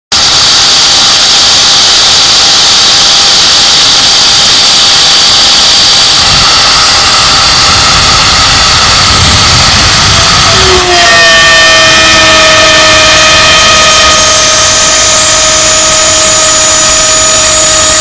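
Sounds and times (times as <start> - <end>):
milling machine spindle whine: 0.1 - 18.0
deep rumble: 6.2 - 11.5.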